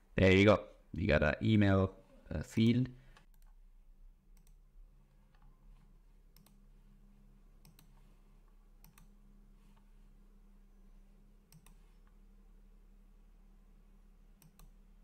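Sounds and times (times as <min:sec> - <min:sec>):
low steady hum: 0:00.0 - 0:15.0
faint computer clicks: 0:07.6 - 0:08.0, 0:08.8 - 0:09.2, 0:11.5 - 0:12.2, 0:14.4 - 0:14.8.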